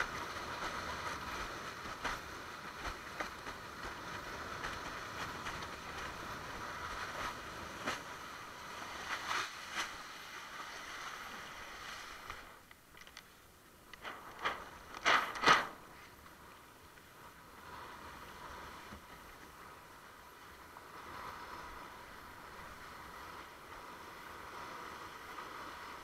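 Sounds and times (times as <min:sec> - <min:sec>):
water rushing past board: 0:14.0 - 0:16.2.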